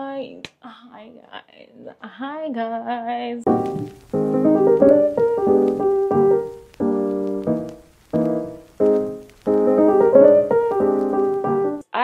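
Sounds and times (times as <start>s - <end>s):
piano chords: 3.5s - 11.8s.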